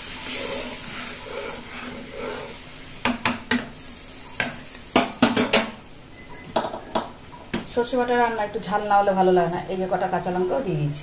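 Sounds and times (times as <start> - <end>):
curry sizzling in a pan: 0.0 - 6.0
spatula knocking against pan: 3.0 - 3.7.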